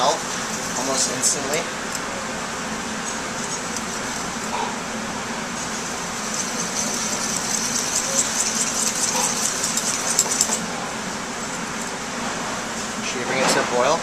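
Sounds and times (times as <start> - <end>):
steady background hum: 0.0 - 14.0
wire whisk scraping a metal pan: 5.6 - 10.6.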